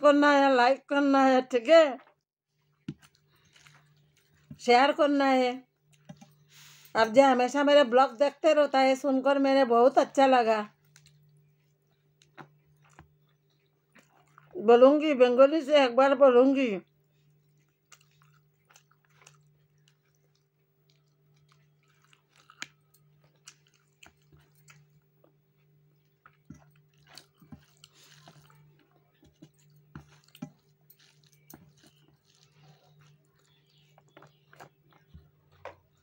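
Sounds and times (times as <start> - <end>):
person chewing food: 2.5 - 4.6, 5.8 - 6.9, 10.8 - 14.6, 16.9 - 36.0.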